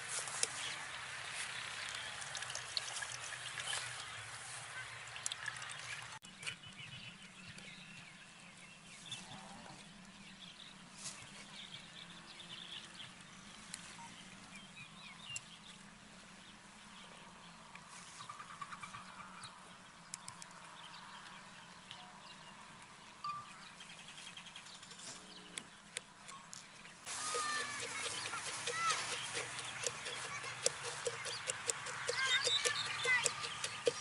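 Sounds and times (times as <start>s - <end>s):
animal calls: 27.1s - 34.0s
spoon scraping metal strainer: 27.1s - 34.0s.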